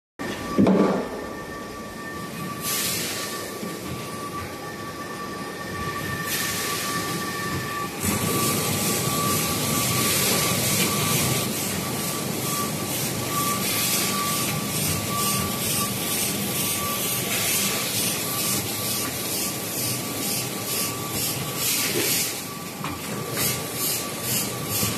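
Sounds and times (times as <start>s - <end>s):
packaging machine running: 5.8s - 24.9s.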